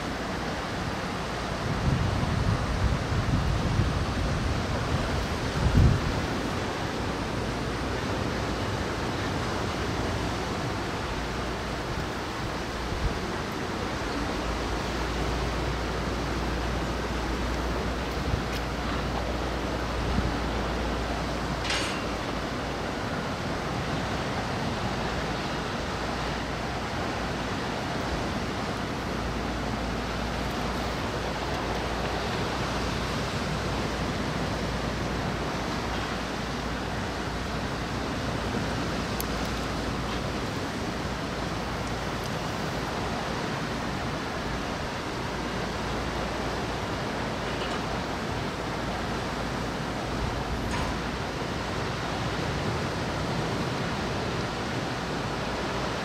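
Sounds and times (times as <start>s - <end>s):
wind buffeting microphone: 0.0s - 55.4s
wind and rain rushing: 0.0s - 56.0s.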